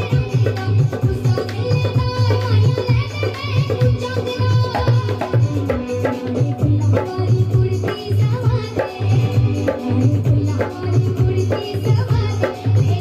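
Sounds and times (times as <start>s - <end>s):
hand drum rhythm: 0.0s - 13.0s.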